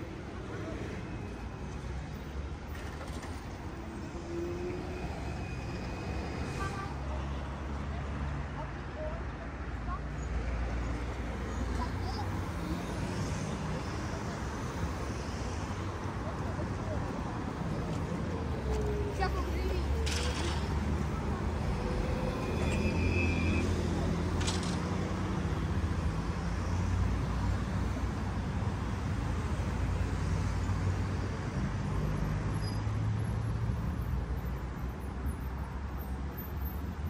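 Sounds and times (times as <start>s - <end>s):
passersby voices: 0.0s - 26.1s
street traffic rumble: 0.0s - 37.0s.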